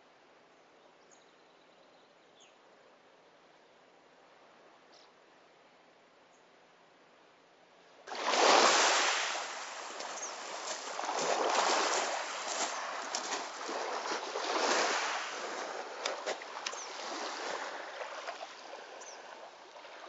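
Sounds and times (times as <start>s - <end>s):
waves washing onto pebbles: 8.1s - 20.0s.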